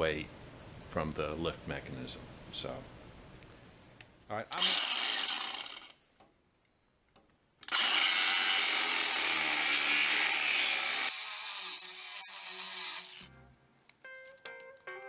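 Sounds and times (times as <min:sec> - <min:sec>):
angle grinder grinding steel: 0:04.6 - 0:05.9, 0:07.7 - 0:13.3.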